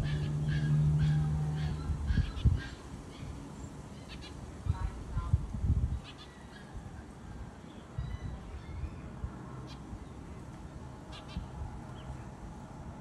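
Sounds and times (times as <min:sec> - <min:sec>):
sparrow chirps: 0:00.0 - 0:04.9, 0:05.9 - 0:06.8, 0:07.7 - 0:10.2, 0:11.1 - 0:12.3.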